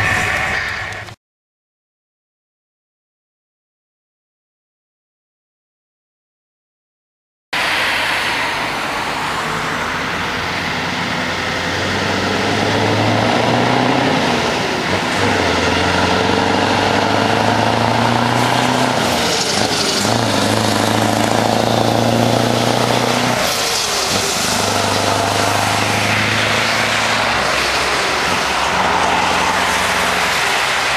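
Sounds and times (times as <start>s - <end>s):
diesel truck engine passing: 7.6s - 30.9s.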